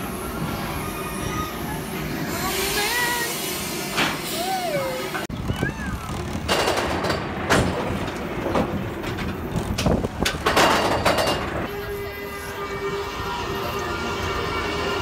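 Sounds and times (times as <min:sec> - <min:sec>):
roller coaster rumbling on track: 0:00.0 - 0:15.0
loud clanks: 0:06.4 - 0:11.7.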